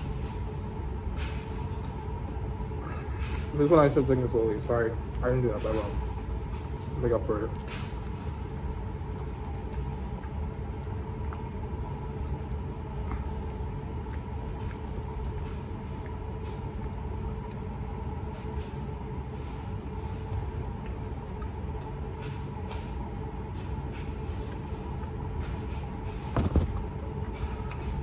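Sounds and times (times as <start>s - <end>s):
low room hum: 0.0s - 28.0s
person chewing: 5.9s - 18.7s, 20.2s - 28.0s.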